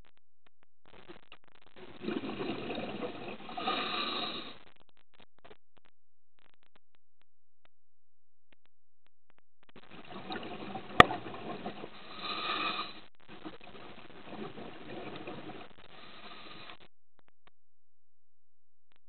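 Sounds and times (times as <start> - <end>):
exhaled bubbles burbling: 1.8 - 4.6, 9.8 - 15.8
diver breathing through regulator: 3.4 - 4.6, 11.9 - 13.0, 15.9 - 16.8.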